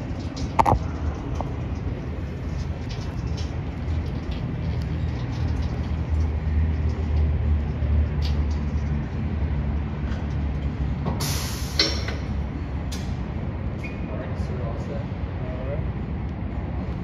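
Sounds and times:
engine rumble: 0.0s - 17.0s
air hiss bursts: 11.2s - 12.0s.

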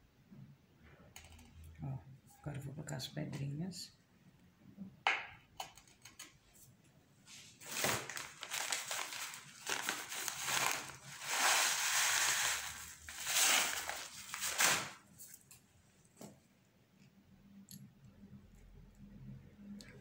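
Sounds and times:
plastic bag crinkling: 7.6s - 15.4s.

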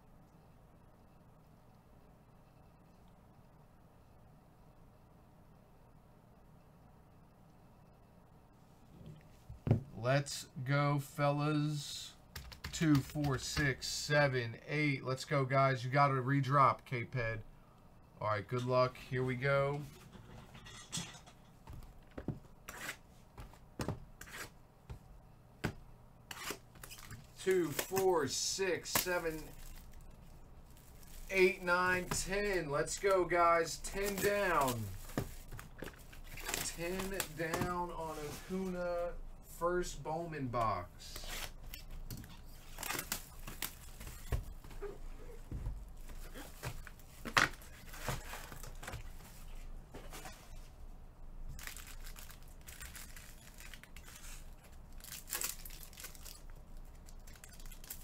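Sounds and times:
cardboard rustling: 45.4s - 50.6s.

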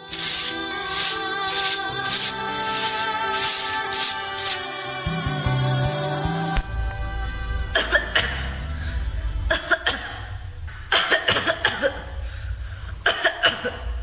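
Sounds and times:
person coughing: 10.9s - 12.2s, 13.0s - 13.9s.

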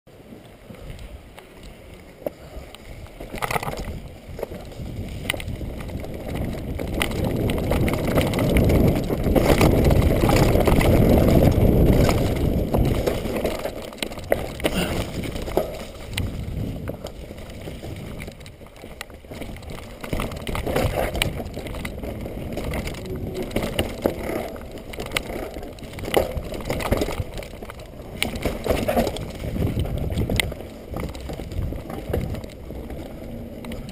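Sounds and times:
bike rattling over rocks: 0.1s - 33.9s
bike tyre noise: 0.1s - 33.9s
wind buffeting microphone: 0.6s - 33.9s.

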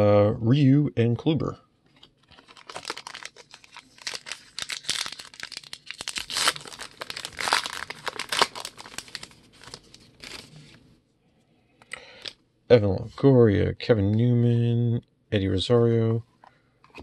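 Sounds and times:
card pack wrapper tearing: 2.2s - 10.7s.

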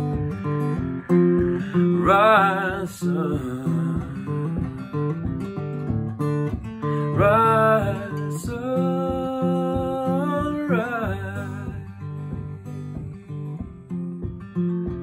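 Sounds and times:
acoustic guitar picking: 0.0s - 15.0s
man singing long notes: 1.4s - 4.4s, 7.0s - 11.9s.

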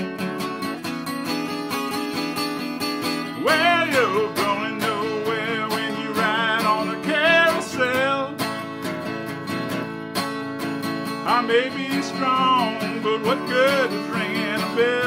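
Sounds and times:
acoustic guitar strumming: 0.0s - 15.0s
wordless singing: 3.4s - 8.4s, 11.2s - 15.0s.

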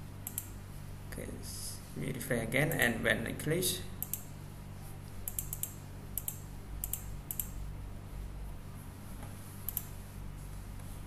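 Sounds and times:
low electrical hum: 0.0s - 11.0s
computer mouse clicking: 0.2s - 0.6s, 4.0s - 4.3s, 5.2s - 7.6s, 9.6s - 10.0s.

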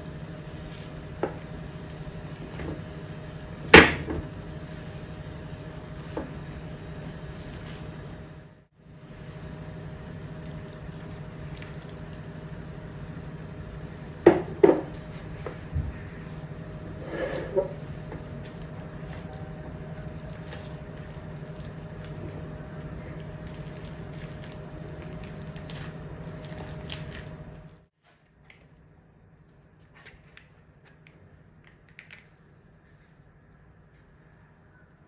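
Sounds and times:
steady low hum: 0.0s - 27.9s
potatoes squishing: 17.7s - 27.8s.

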